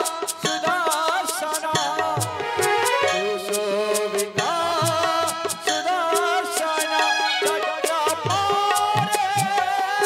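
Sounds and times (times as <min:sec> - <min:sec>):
ornamented melody line: 0:02.0 - 0:05.2.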